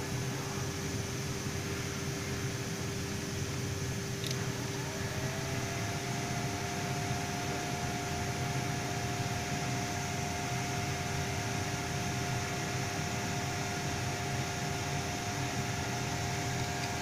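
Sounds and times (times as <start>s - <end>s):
constant hum: 0.0s - 17.0s
hoist gear motor whine: 0.0s - 17.0s
click: 4.2s - 4.4s.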